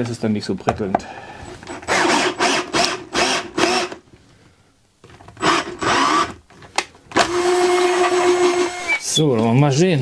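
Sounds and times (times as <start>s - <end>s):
electric drill boring into plywood: 1.7s - 4.0s, 5.4s - 6.4s, 7.2s - 9.0s.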